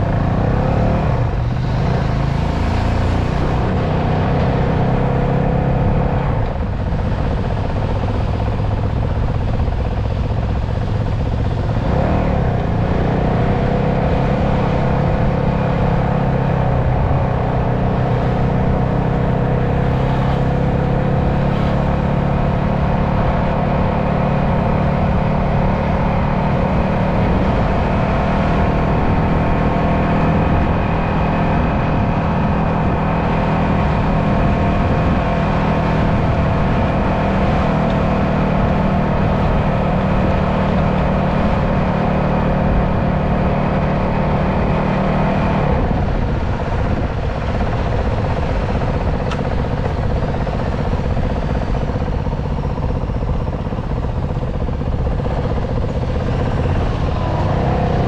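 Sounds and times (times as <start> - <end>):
motorcycle engine running: 0.0 - 58.0
road and wind noise: 0.0 - 58.0.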